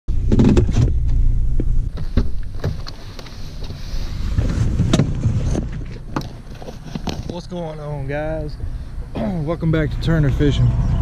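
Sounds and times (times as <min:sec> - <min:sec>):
vehicle engine humming: 0:00.1 - 0:11.0.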